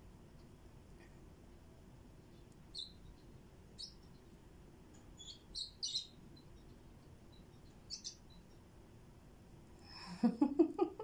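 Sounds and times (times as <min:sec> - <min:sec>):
bird chirping: 0:02.2 - 0:08.8.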